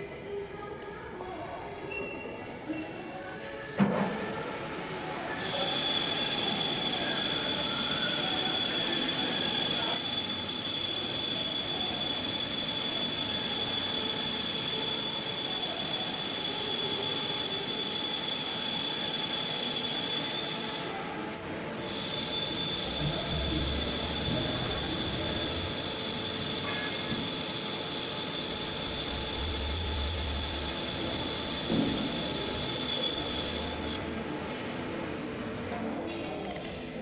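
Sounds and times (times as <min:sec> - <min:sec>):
lathe running: 0:05.4 - 0:21.2, 0:21.8 - 0:34.2
cutting tool squealing: 0:21.8 - 0:34.0.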